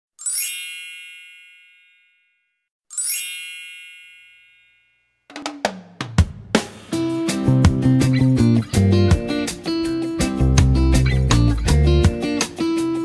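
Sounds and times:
sparkling chime effect: 0.2s - 5.2s
music with drum hits: 5.3s - 12.9s.

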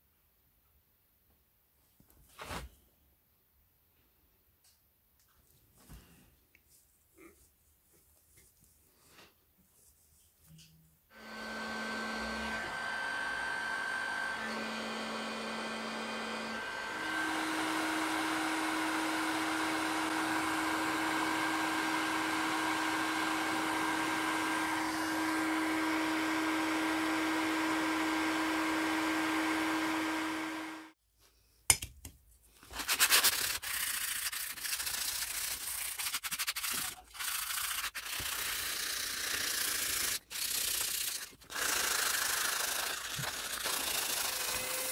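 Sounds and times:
heating tool hissing and humming: 11.1s - 31.0s, 41.5s - 44.9s.

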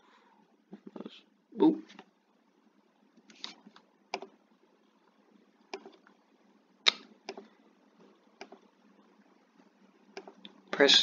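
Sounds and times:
computer mouse clicking: 3.2s - 4.4s, 5.7s - 6.2s, 6.8s - 7.5s, 8.4s - 8.6s, 10.1s - 10.6s.

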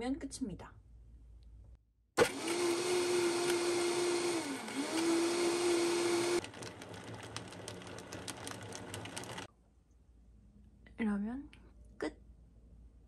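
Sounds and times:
blender motor whining: 2.2s - 9.5s.

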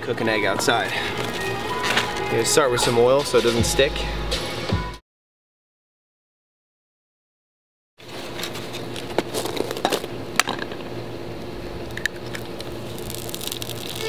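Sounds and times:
egg cracking on pan: 12.6s - 14.0s.

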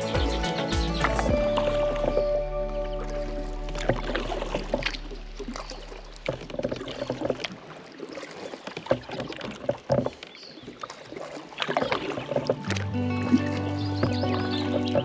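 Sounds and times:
background music: 0.0s - 5.5s, 12.5s - 15.0s
paddle splashing in water: 0.0s - 15.0s
water dripping from paddle: 0.0s - 15.0s.

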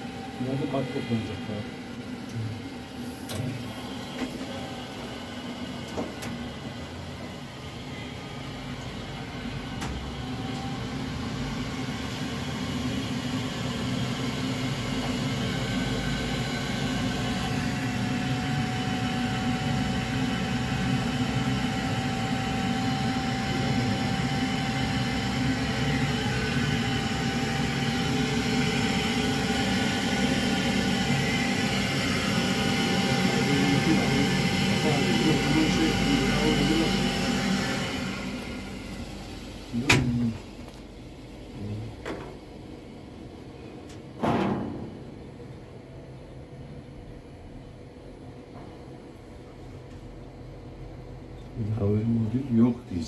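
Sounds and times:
boiler fan and burner whoosh: 6.5s - 40.5s.

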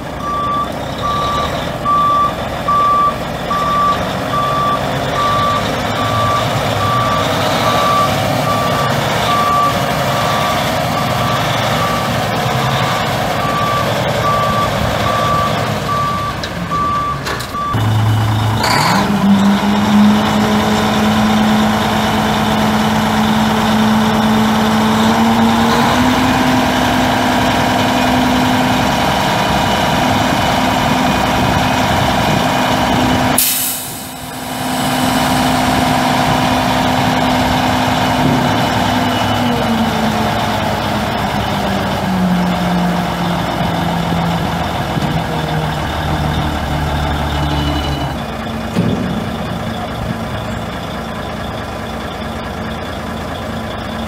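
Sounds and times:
truck diesel engine running: 0.0s - 54.0s
reverse alarm beeping: 0.2s - 12.1s, 13.4s - 19.0s
burst of air: 33.4s - 35.0s
sharp air hiss: 33.4s - 35.0s.

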